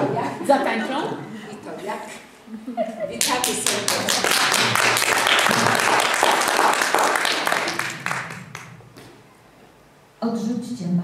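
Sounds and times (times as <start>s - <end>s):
audience applauding: 3.2s - 9.1s.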